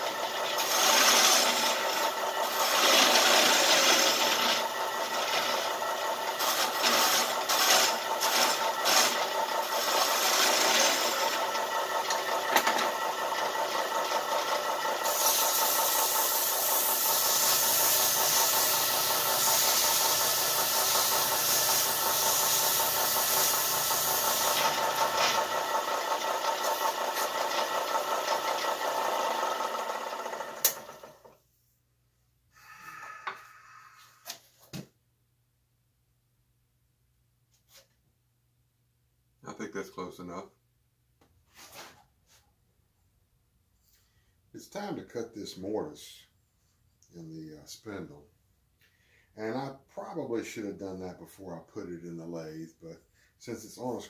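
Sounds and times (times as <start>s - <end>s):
wood lathe humming: 0.0s - 31.3s
scraping hiss on spinning wood: 15.0s - 25.4s.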